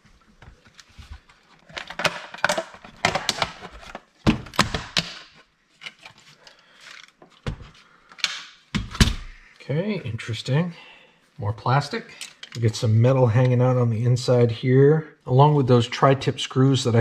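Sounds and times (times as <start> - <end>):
plastic clicks creaks and rattles: 1.6 - 5.2.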